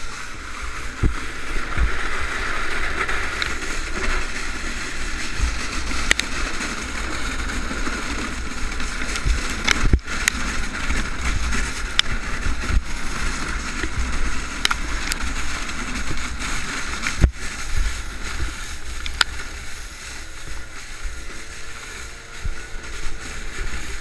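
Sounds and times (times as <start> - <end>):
sled sliding over snow: 0.0 - 24.0
snowmobile engine running: 0.0 - 24.0
wind rumble on microphone: 0.0 - 24.0
sharp knocks of sled jolting: 0.6 - 24.0.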